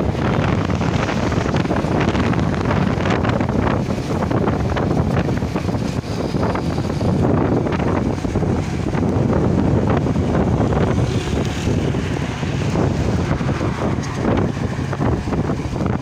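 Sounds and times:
road and engine rumble: 0.0s - 16.0s
wind buffeting microphone: 0.0s - 16.0s.

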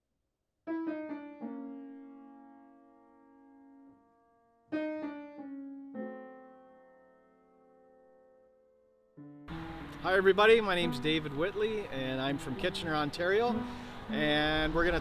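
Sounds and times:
piano note runs: 9.2s - 11.5s.

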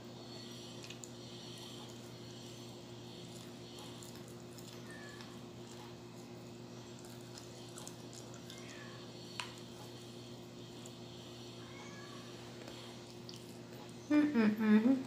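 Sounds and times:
steady low hum: 0.0s - 15.0s
chewing and mouth sounds: 0.7s - 11.0s, 12.6s - 13.9s.

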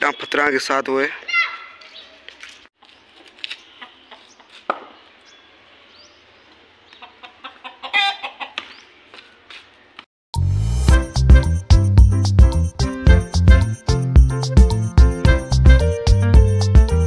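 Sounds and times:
chicken clucking: 3.8s - 4.8s, 6.9s - 8.9s
loud music: 10.4s - 17.0s.

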